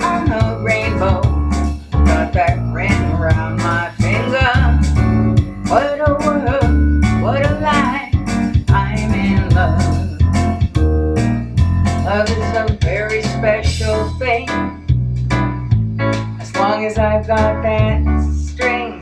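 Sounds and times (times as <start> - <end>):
electronic piano chords: 0.0 - 19.0
washtub bass plucked notes: 0.0 - 19.0.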